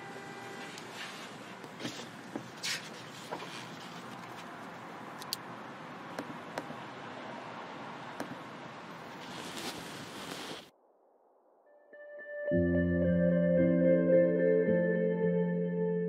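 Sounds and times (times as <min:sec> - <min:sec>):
background hiss: 0:08.8 - 0:10.7.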